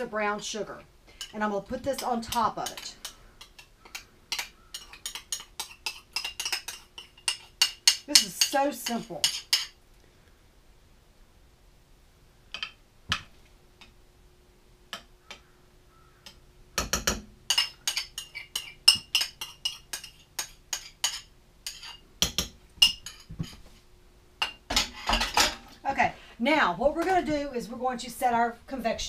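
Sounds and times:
spoon clinking and scraping bowl: 2.0s - 9.8s, 16.8s - 23.6s.

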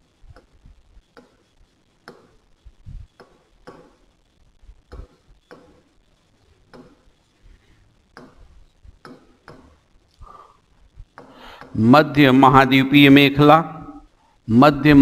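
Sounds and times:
pen tapping on screen: 1.1s - 1.4s, 2.0s - 2.4s, 3.2s - 4.0s, 4.9s - 5.9s, 6.7s - 7.0s, 8.1s - 9.8s, 11.1s - 11.8s.

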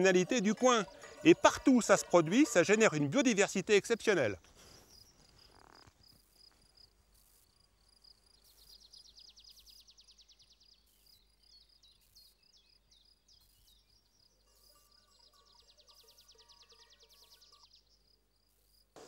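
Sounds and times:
faint music: 0.0s - 4.4s
insects chirping: 0.2s - 19.0s.

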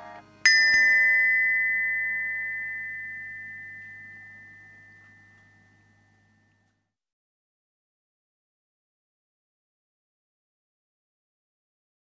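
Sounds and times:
faint low hum: 0.0s - 6.9s
bell-like strike ringing: 0.5s - 6.7s.

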